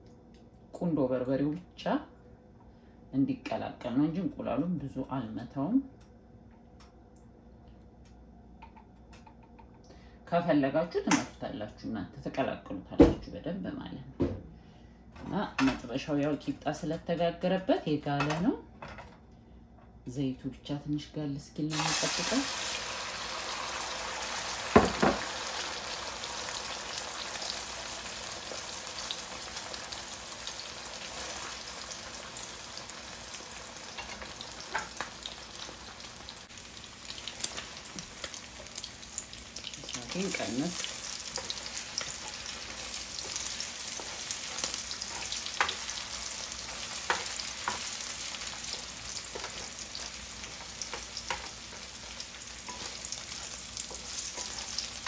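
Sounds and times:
eggs sizzling in oil: 21.7 - 55.0
spatula stirring and scraping: 39.8 - 55.0.

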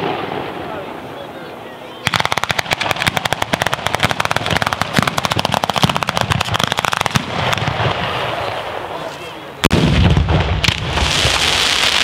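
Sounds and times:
firecrackers banging rapidly: 2.0 - 8.6.

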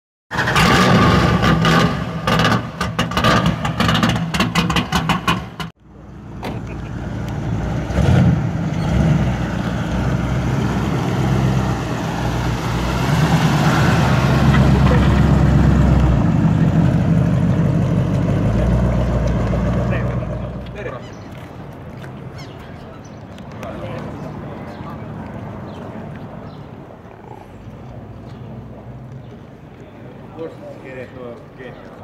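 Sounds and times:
deep exhaust rumble: 6.0 - 20.9.

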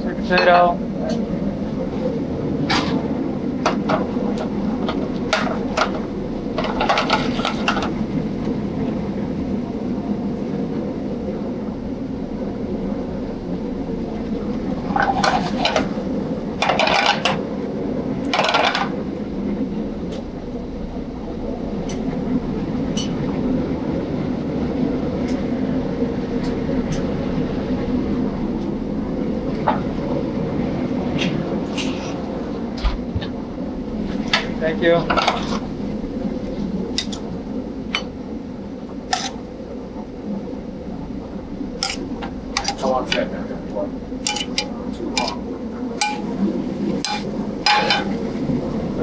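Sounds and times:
kitchen ventilation roar: 0.0 - 49.0
pans cooking: 18.2 - 19.0, 39.0 - 39.4, 41.7 - 48.4
metal tongs clinking on pan: 44.3 - 45.3.

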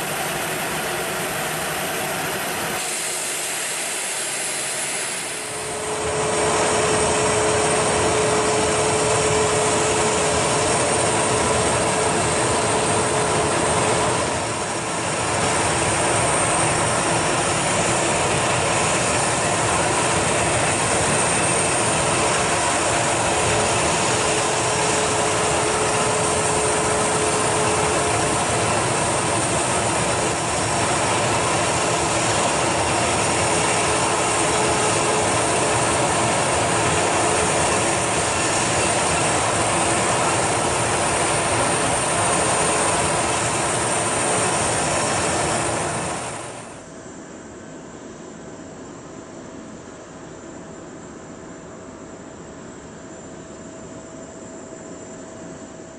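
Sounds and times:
jet turbine rushing with whine: 0.0 - 55.9.

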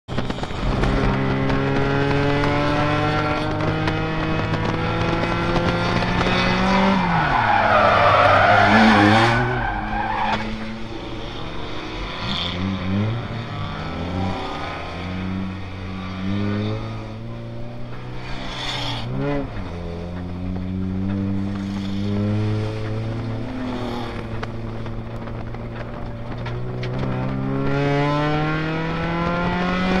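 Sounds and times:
race car engine revving: 0.2 - 30.0
tyres squealing and skidding: 6.4 - 12.2.

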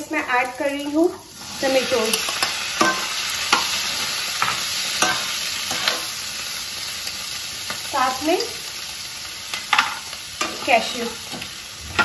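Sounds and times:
tomatoes and onions sizzling: 0.0 - 12.0
metal spoon scraping a pan: 1.6 - 6.2, 9.5 - 12.0.

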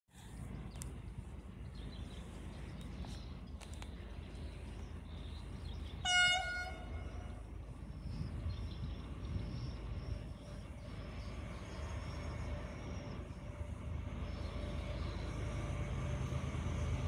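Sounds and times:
train rumbling: 0.1 - 17.0
locomotive horn blast: 6.0 - 7.4.

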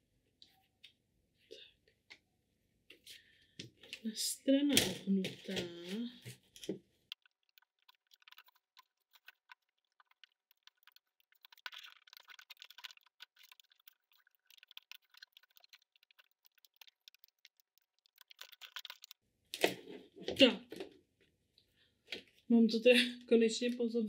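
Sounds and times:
plastic sheet clicking and crackling: 6.5 - 19.8.

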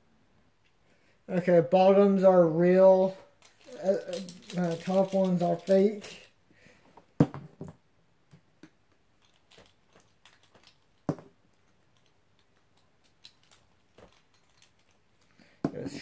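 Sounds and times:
spinning tops clicking and clacking: 3.4 - 6.3.

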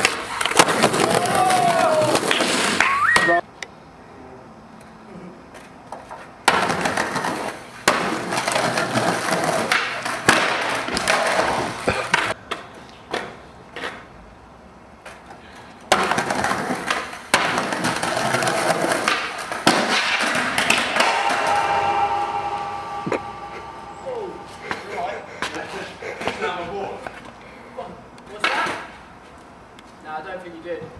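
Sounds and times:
skateboard clacks and scrapes: 0.0 - 1.4, 5.5 - 14.2, 15.0 - 20.8
skateboard wheels rolling on concrete: 0.0 - 3.6, 4.8 - 20.8, 25.4 - 30.9.

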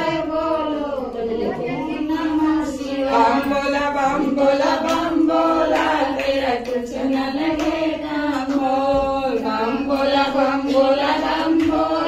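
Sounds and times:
women singing in unison: 0.0 - 12.0.

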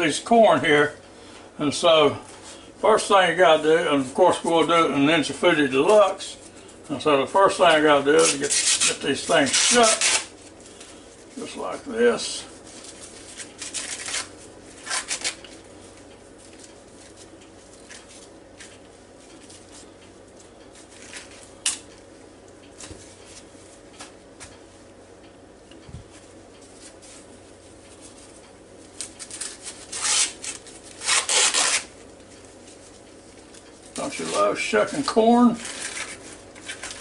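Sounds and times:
corn husks rustling and ripping: 7.5 - 15.6, 28.9 - 31.9, 33.9 - 37.0.

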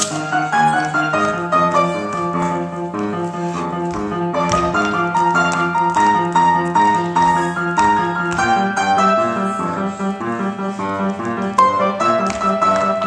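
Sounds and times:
up-tempo piano: 0.0 - 13.0.

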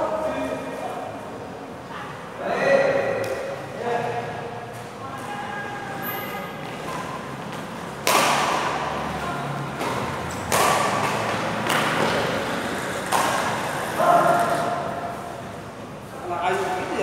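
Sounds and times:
rackets hitting shuttlecock: 6.9 - 9.0, 9.7 - 12.4, 13.0 - 13.7.

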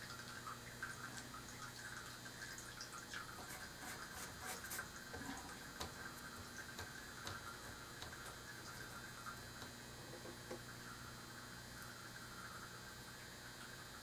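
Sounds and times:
low steady hum: 0.0 - 14.0
small ticks and taps: 6.7 - 8.4.

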